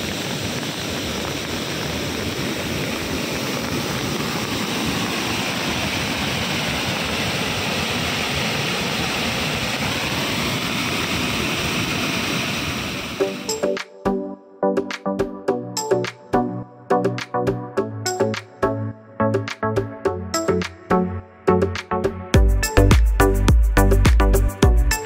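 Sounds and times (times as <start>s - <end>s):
waterfall roaring: 0.0s - 13.7s.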